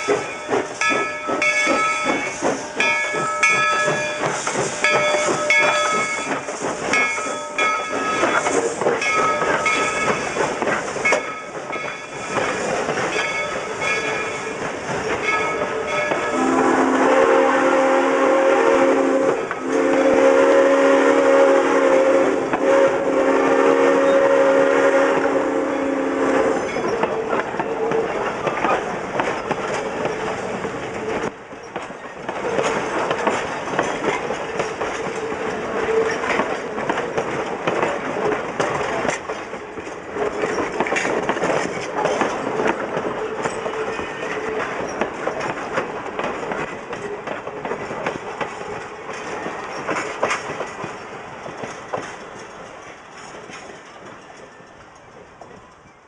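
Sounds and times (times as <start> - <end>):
steam locomotive chime whistle: 0.0 - 10.3, 15.2 - 28.2
wheels clicking over rail joints: 0.0 - 16.7, 24.9 - 56.0.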